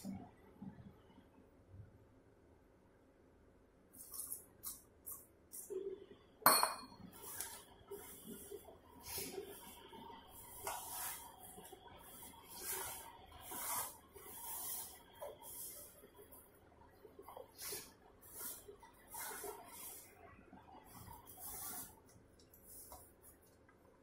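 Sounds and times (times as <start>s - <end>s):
hands kneading dough in metal basin: 7.0s - 24.0s.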